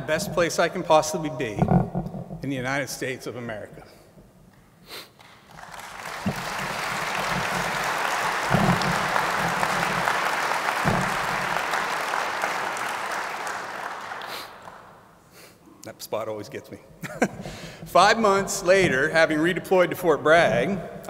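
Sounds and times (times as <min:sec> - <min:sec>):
audience applauding: 0:05.2 - 0:15.0
dull low thumps: 0:06.2 - 0:10.2.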